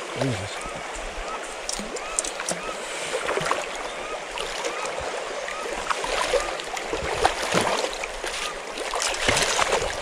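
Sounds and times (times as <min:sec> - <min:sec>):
stream water running over stones: 0:00.0 - 0:10.0
person wading through water: 0:00.1 - 0:10.0
fish thrashing in a net: 0:06.0 - 0:10.0.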